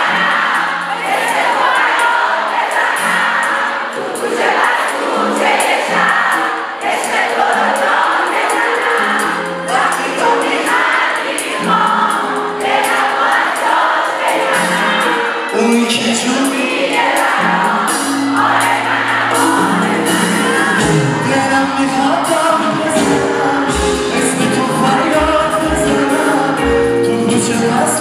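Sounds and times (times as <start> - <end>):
keyboards: 0.0 - 28.0
man singing: 15.4 - 18.2, 19.4 - 28.0
drum beat: 17.8 - 27.4.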